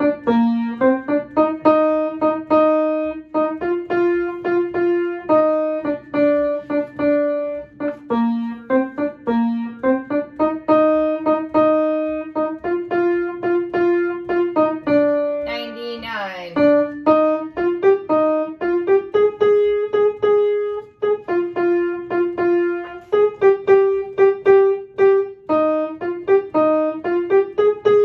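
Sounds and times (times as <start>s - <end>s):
upright piano melody: 0.0s - 28.0s.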